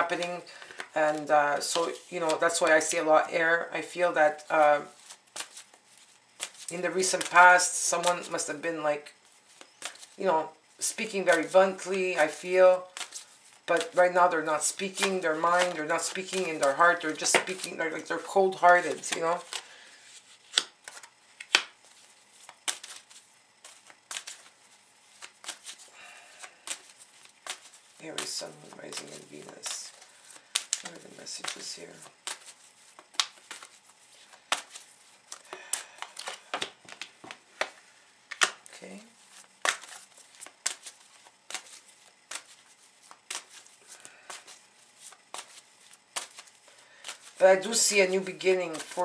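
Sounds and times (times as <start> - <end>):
cards snapping and tapping: 5.3 - 5.8, 6.4 - 7.4, 12.9 - 14.0, 14.7 - 17.8, 20.4 - 24.5, 25.1 - 25.8, 26.4 - 38.7, 39.6 - 47.4
sharp card snaps: 20.5 - 21.8, 28.9 - 33.7, 34.5 - 38.7, 39.6 - 43.6.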